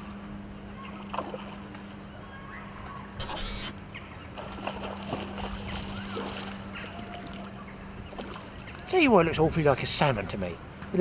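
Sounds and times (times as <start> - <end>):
steady low hum: 0.0 - 8.9
brief rushing hiss: 3.2 - 3.7
flowing water: 4.4 - 10.2.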